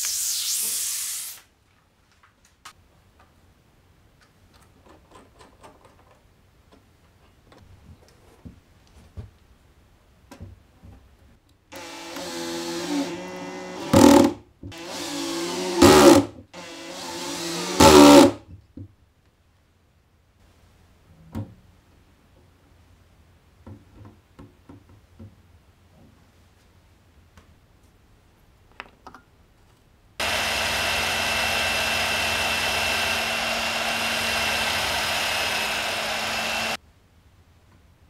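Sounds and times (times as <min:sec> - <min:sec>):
cordless drill driving screws: 0:11.7 - 0:18.3, 0:30.2 - 0:36.8.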